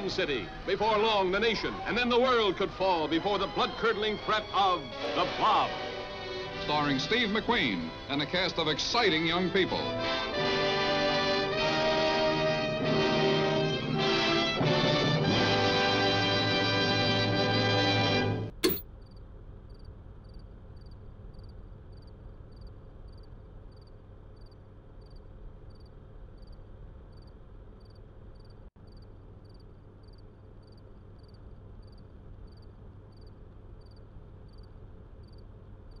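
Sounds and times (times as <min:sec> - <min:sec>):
crickets chirping: 0:18.7 - 0:36.0
low background hiss and rumble: 0:18.7 - 0:36.0.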